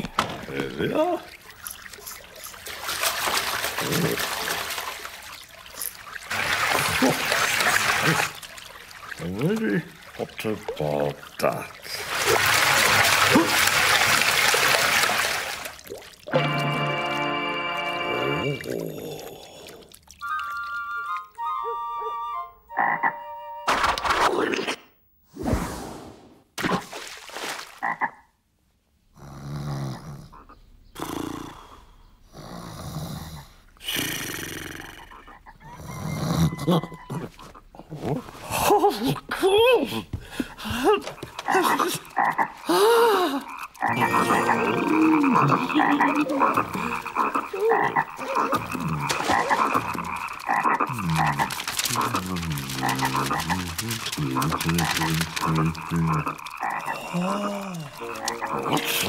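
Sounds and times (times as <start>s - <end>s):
cartoon frogs croaking: 22.7s - 23.3s, 27.8s - 28.3s, 41.4s - 42.8s, 43.4s - 59.0s
deep repeated croaks: 43.5s - 57.2s.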